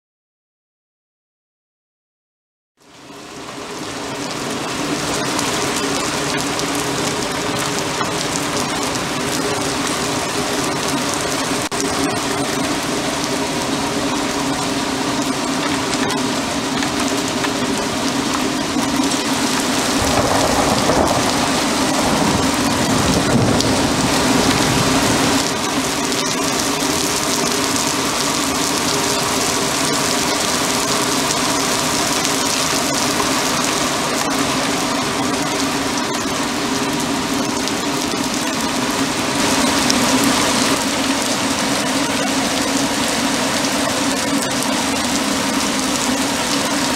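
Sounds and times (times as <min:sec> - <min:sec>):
heavy rain pouring: 0:02.8 - 0:46.9
thunder rumble: 0:18.5 - 0:46.0
low hum: 0:18.7 - 0:29.3.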